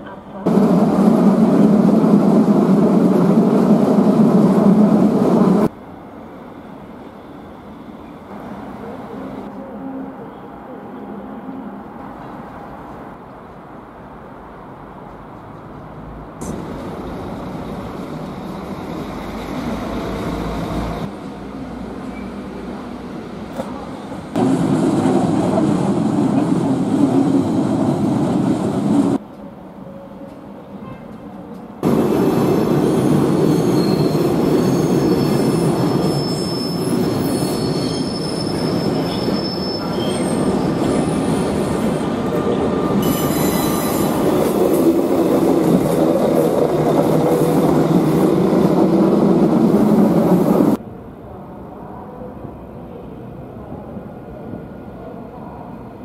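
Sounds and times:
train rumbling over tracks: 0.0s - 56.0s
high wheel squeals: 32.8s - 44.3s.

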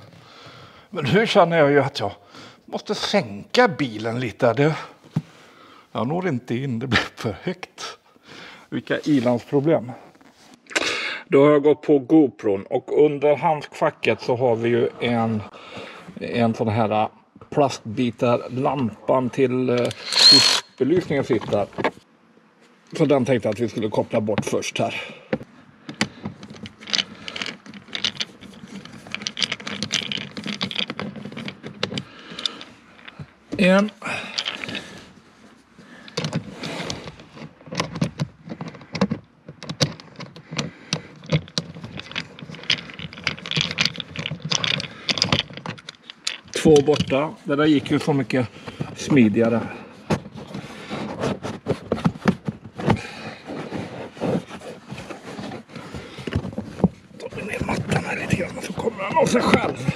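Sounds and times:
plastic trim clicking and rustling: 25.9s - 33.2s, 36.1s - 47.2s.

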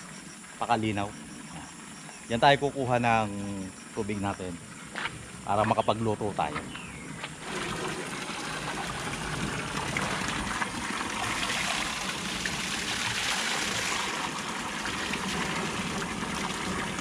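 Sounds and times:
spring water running: 7.3s - 17.0s.

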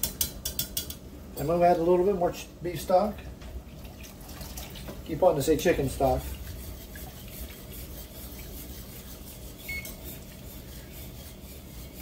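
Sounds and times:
whisk scraping a steel skillet: 5.5s - 12.0s.

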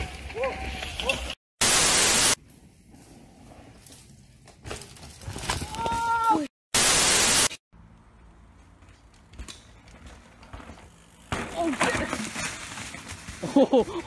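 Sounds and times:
outdoor noise: 0.0s - 14.0s
static-like hiss burst: 1.6s - 2.4s, 6.8s - 7.6s.

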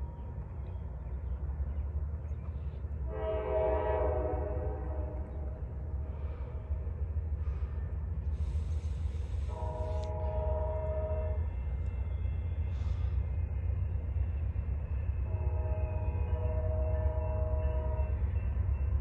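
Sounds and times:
train horn blast: 3.0s - 5.6s, 9.5s - 11.6s, 15.2s - 18.4s.

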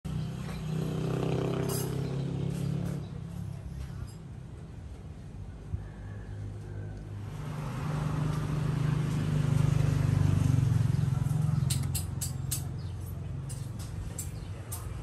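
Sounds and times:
vehicle engine hum passing: 0.1s - 15.0s.

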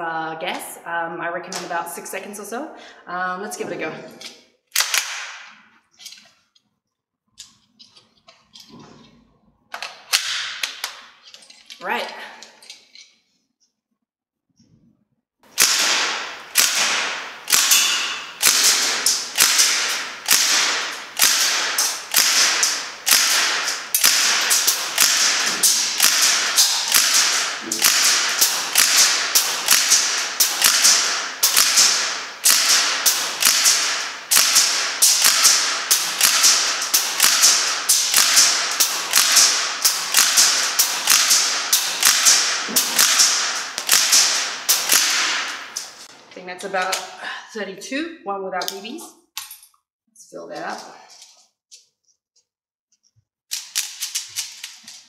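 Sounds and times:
airsoft gun single shots: 15.6s - 45.8s.

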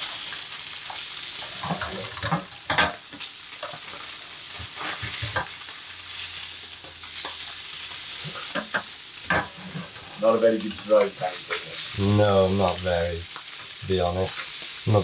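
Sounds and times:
fish sizzling in butter: 0.0s - 15.0s
spatula knocking and scraping pan: 1.6s - 4.0s, 4.6s - 5.6s, 8.3s - 10.2s.

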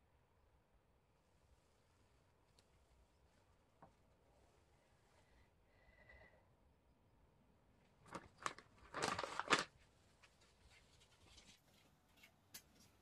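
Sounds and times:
crinkling rustle: 7.9s - 13.0s.

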